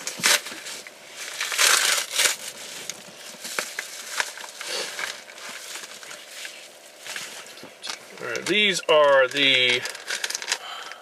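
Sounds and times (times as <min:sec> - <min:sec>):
packaging crinkling and tearing: 0:00.0 - 0:11.0
small crackles and clicks: 0:07.8 - 0:11.0.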